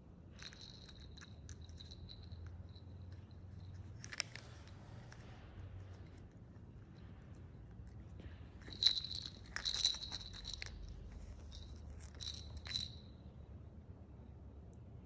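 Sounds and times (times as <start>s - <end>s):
small bell jingle: 0.4s - 4.2s, 8.6s - 13.2s
plastic rattle clattering: 0.4s - 4.8s, 8.6s - 13.0s.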